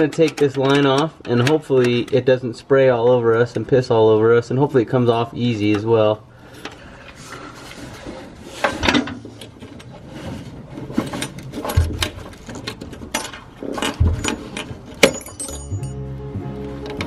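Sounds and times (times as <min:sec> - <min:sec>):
metal and plastic clicks and rattles: 0:00.0 - 0:02.2, 0:10.8 - 0:15.7.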